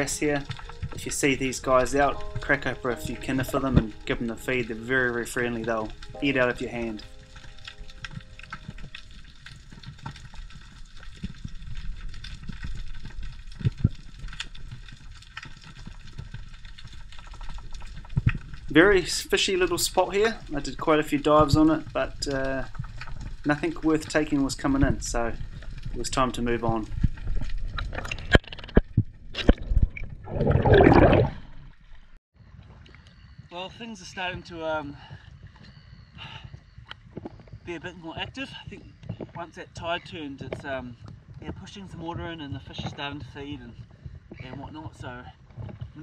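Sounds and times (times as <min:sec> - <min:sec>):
water splashing: 0:00.0 - 0:12.0, 0:22.8 - 0:32.2
underwater crackling and clicking: 0:00.0 - 0:33.5, 0:35.4 - 0:46.0
water gurgling and sloshing: 0:00.0 - 0:33.5
low underwater rumble: 0:20.3 - 0:33.0.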